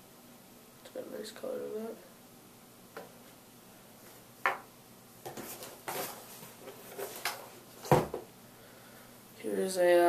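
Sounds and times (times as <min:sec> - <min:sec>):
thump on a table: 0:07.8 - 0:08.3.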